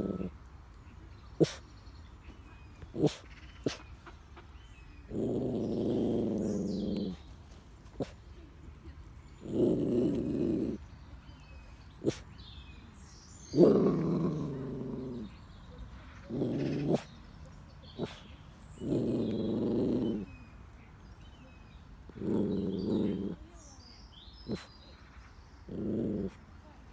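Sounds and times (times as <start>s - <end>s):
dog growling: 0.0s - 0.4s, 2.9s - 3.8s, 5.0s - 7.4s, 9.2s - 11.1s, 11.9s - 12.3s, 13.4s - 15.6s, 16.2s - 17.2s, 17.8s - 20.5s, 21.4s - 23.7s, 24.4s - 24.7s, 25.6s - 26.6s.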